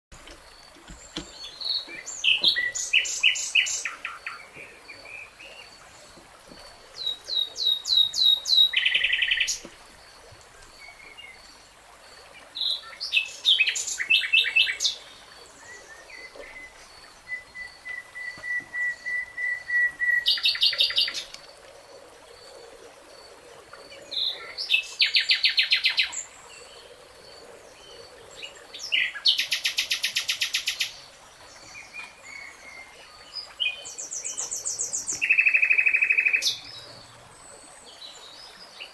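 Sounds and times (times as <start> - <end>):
songbirds singing trills: 0.5 - 5.8.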